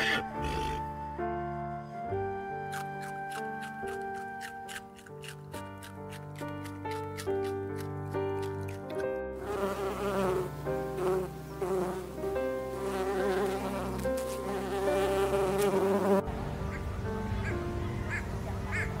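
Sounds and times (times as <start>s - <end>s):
bumblebee buzzing: 9.3s - 16.3s.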